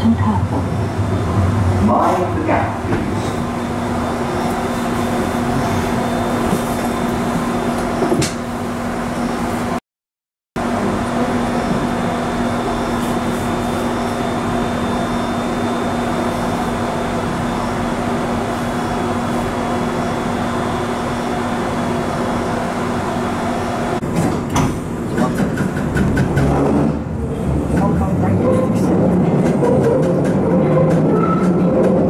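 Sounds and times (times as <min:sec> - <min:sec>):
train clatter and knocks: 0:00.0 - 0:03.5, 0:24.0 - 0:32.0
underground train rumble: 0:00.0 - 0:09.8, 0:10.6 - 0:32.0.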